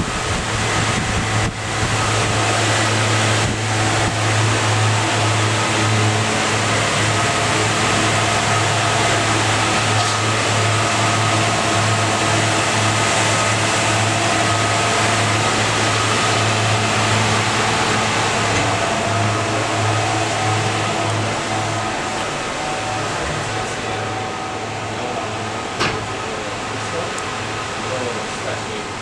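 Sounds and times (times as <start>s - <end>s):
air conditioning hum: 0.0s - 29.0s
cooling fans whirring: 0.0s - 29.0s
steady tones: 0.0s - 29.0s.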